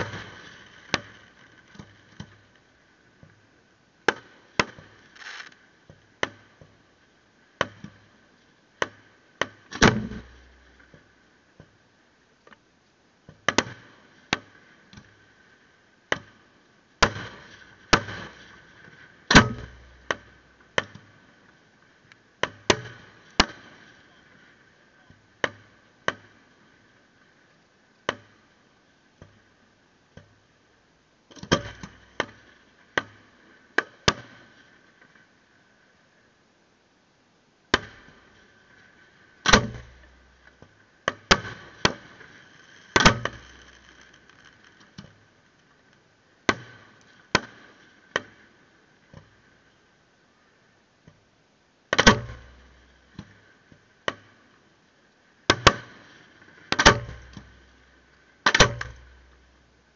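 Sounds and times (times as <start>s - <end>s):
fireworks bursting with bangs: 4.7s - 5.6s, 41.3s - 44.8s.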